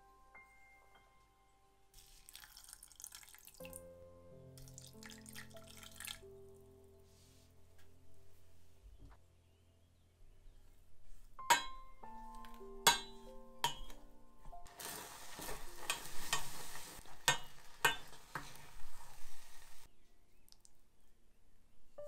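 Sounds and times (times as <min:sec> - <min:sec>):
oatmeal bubbling: 0:02.0 - 0:03.8, 0:04.6 - 0:06.2, 0:14.6 - 0:20.8
spoon knocking and scraping pan: 0:11.4 - 0:14.0, 0:14.7 - 0:19.9.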